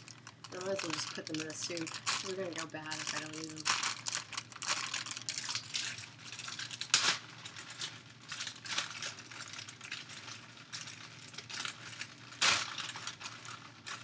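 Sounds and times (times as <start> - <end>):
plastic packets crinkling: 0.0 - 14.0.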